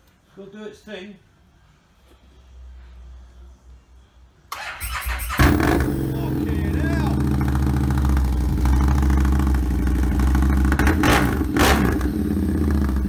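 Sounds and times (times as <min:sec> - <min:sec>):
motorcycle engine revving: 0:04.6 - 0:13.0
motorcycle engine running: 0:05.4 - 0:13.0.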